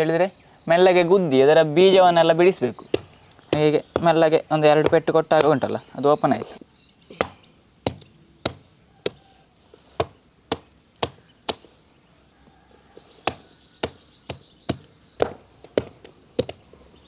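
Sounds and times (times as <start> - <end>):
stone pestle knocking: 2.9 - 5.6, 13.2 - 16.6.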